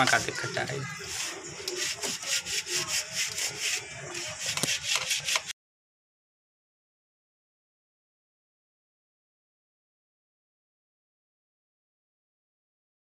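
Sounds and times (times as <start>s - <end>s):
hand scrubbing rubbing strokes: 0.0s - 5.5s.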